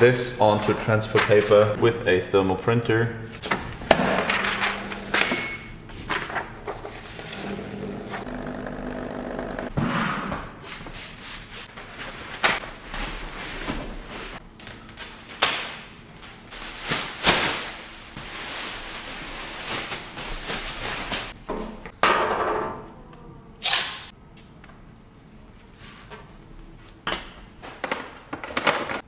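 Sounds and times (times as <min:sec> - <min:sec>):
plastic cover crinkling: 0:16.2 - 0:21.4.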